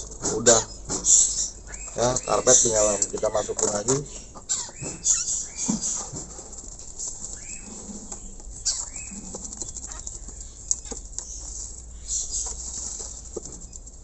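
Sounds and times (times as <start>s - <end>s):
bird chirps: 0.4s - 6.1s, 7.2s - 12.7s.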